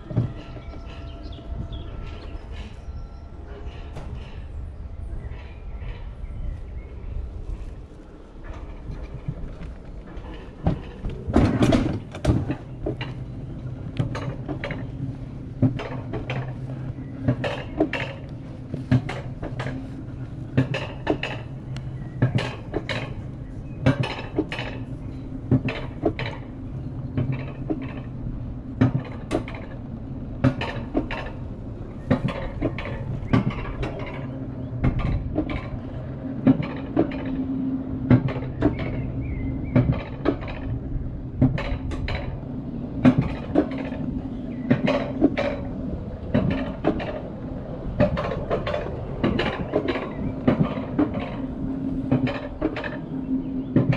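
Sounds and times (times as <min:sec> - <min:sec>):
lift low hum: 0:00.0 - 0:53.9
metallic clicks and clanks: 0:20.5 - 0:28.2, 0:28.8 - 0:37.5, 0:43.0 - 0:53.1.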